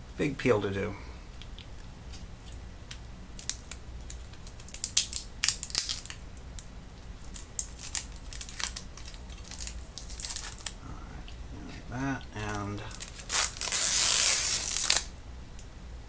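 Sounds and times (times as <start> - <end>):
plastic film being peeled: 3.3 - 6.2, 7.2 - 10.8, 12.4 - 15.1.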